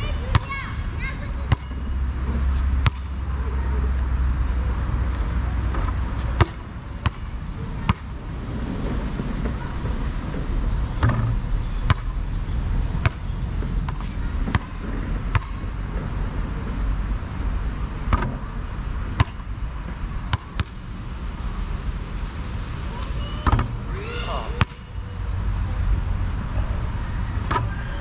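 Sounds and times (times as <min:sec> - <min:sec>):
insects droning: 0:00.0 - 0:28.0
basketball bouncing on asphalt: 0:00.2 - 0:03.4, 0:05.0 - 0:08.2, 0:10.3 - 0:16.8, 0:17.9 - 0:18.5, 0:19.1 - 0:20.9, 0:23.4 - 0:25.0.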